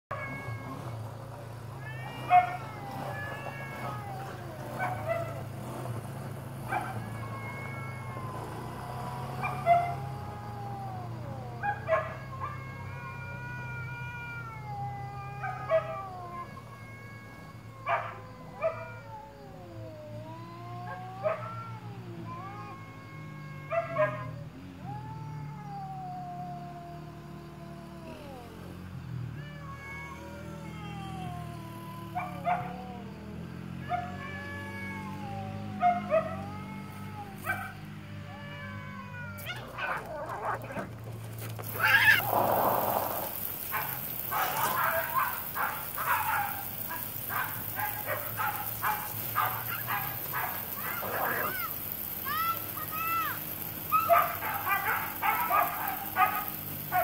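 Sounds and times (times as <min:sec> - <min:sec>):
cats screeching and hissing: 0:00.1 - 0:57.0
cats yowling: 0:00.1 - 0:57.0
water spray splashing: 0:41.0 - 0:57.0.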